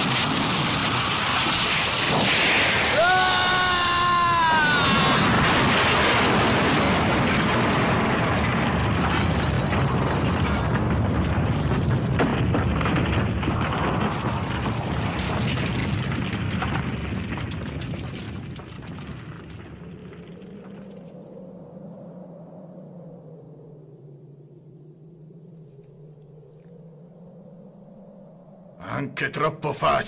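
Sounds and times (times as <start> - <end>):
cartoon explosion blast: 0.0 - 8.0
crackles of flying rock: 0.0 - 24.1.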